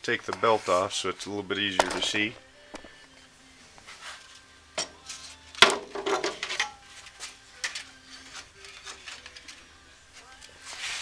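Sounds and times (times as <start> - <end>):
metal knocks and clanks: 5.6 - 6.8.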